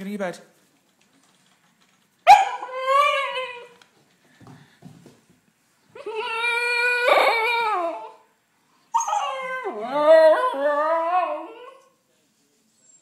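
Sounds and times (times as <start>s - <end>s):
puppy howling: 2.3s - 3.8s, 6.0s - 8.3s, 9.0s - 11.9s.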